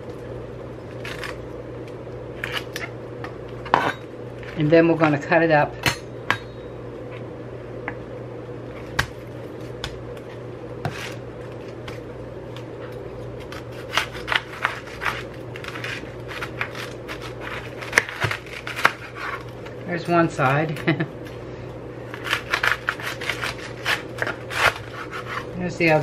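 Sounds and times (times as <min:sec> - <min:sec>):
low hum: 0:00.0 - 0:26.0
knife crunching through cabbage: 0:00.9 - 0:01.5, 0:12.8 - 0:19.8, 0:22.1 - 0:25.6.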